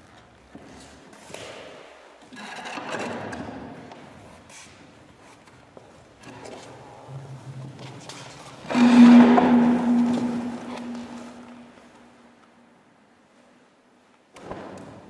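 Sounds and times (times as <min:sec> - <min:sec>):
chair scraping on tiled floor: 0:08.5 - 0:12.0.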